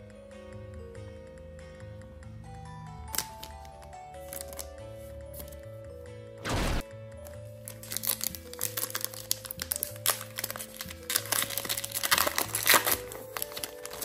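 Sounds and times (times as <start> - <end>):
background music: 0.0 - 14.0
cards clicking while handled: 3.1 - 5.6, 7.8 - 14.0
foil wrapper crinkling: 7.6 - 14.0.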